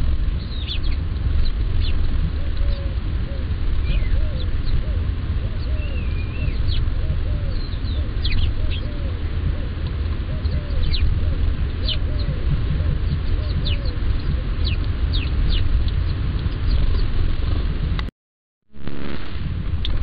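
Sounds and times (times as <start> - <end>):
steady low rumble: 0.0 - 18.1, 18.7 - 20.0
lower arching bird call: 2.4 - 15.3
sharp downward bird calls: 10.4 - 15.6.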